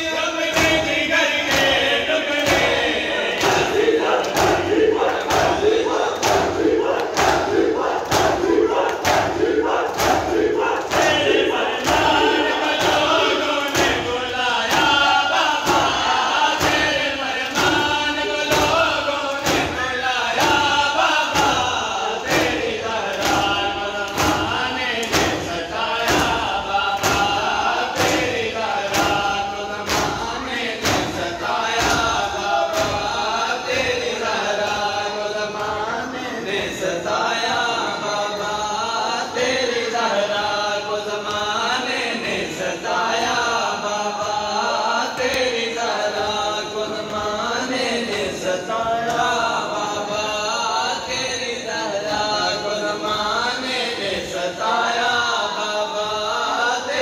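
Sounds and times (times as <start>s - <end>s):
group chanting in unison: 0.0s - 57.0s
hands slapping chests: 2.4s - 17.9s, 21.3s - 33.2s.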